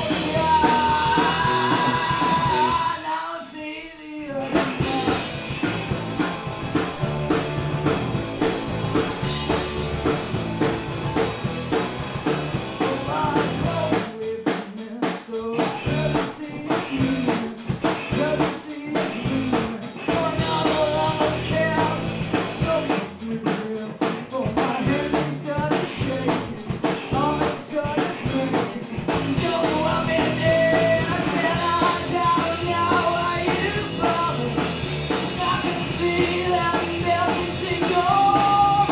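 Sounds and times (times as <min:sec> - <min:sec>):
woman singing: 0:00.0 - 0:05.2
punk rock band playing: 0:00.0 - 0:38.9.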